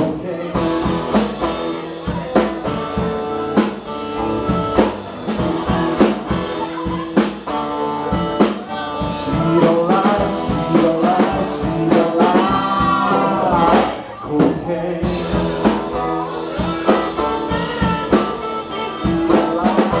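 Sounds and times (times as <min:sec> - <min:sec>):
drum kit beat: 0:00.0 - 0:20.0
guitars playing: 0:00.0 - 0:20.0
person singing long notes: 0:08.6 - 0:20.0.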